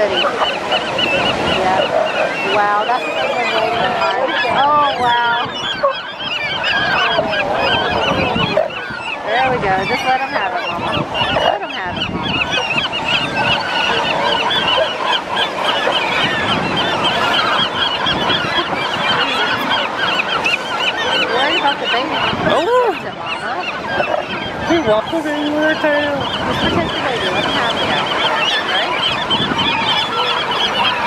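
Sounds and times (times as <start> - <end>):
flock of gulls calling: 0.0 - 31.0.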